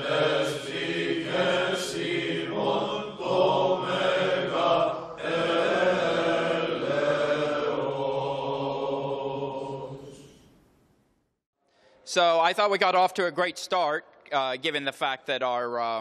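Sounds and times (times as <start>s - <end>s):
choral chant: 0.0s - 10.5s.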